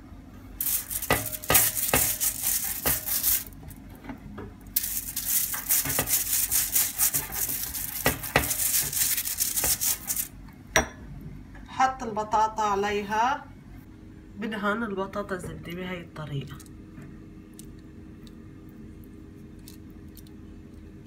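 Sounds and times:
aluminium foil crinkling and scraping: 0.6s - 3.8s, 4.8s - 10.3s.

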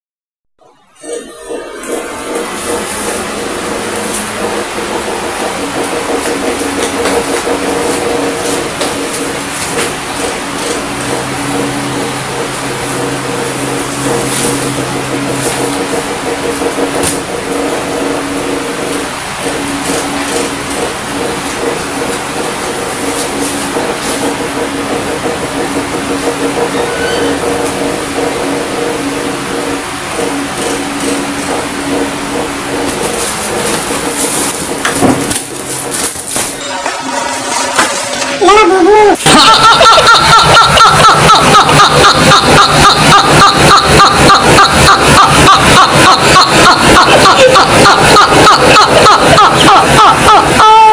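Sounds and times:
motor humming: 0.6s - 38.2s, 39.3s - 50.9s
rapid high-pitched laughter: 39.0s - 50.9s.

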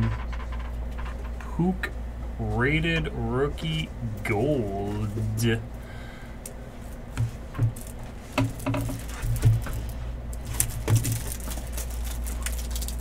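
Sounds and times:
plastic card sleeve rustling: 7.2s - 13.0s.

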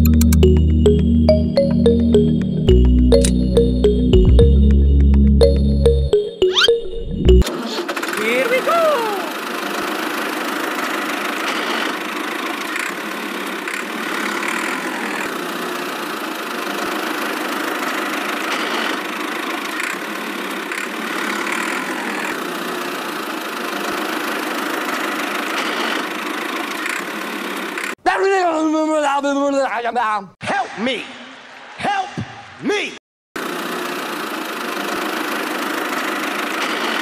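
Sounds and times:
toy tractor engine running: 7.4s - 28.0s, 33.4s - 37.0s.

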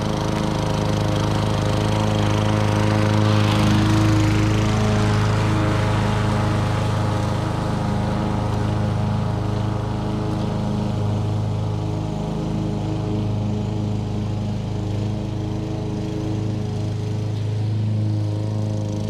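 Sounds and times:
lawn mower engine running: 0.0s - 19.0s.

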